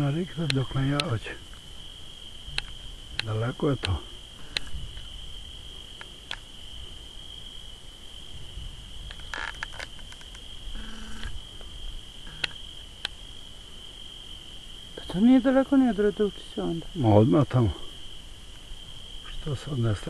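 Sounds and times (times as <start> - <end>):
insects trilling: 0.0 - 20.0
faint sharp clicks: 0.4 - 1.6, 2.5 - 5.1, 6.0 - 6.5, 12.3 - 13.2.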